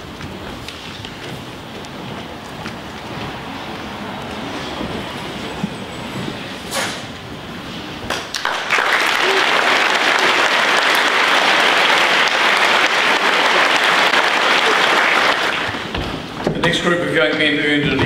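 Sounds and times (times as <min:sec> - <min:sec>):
audience applauding: 0:08.1 - 0:16.0.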